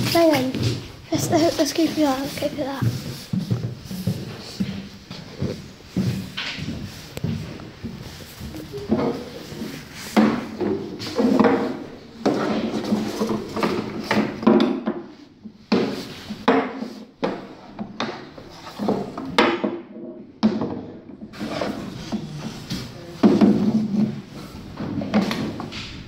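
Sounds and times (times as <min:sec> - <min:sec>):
figures scraping on wooden stage: 0:00.0 - 0:14.2, 0:21.3 - 0:25.7.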